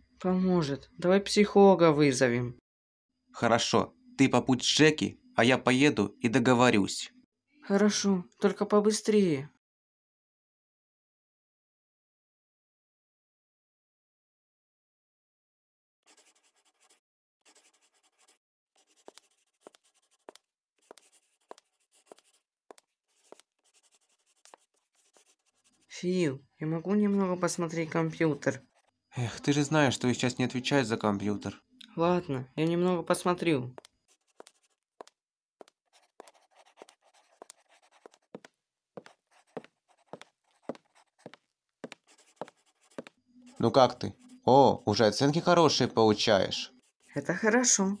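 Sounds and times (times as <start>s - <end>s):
pen scratching on paper: 16.1s - 26.0s, 28.2s - 29.0s, 33.8s - 45.5s, 46.2s - 48.0s.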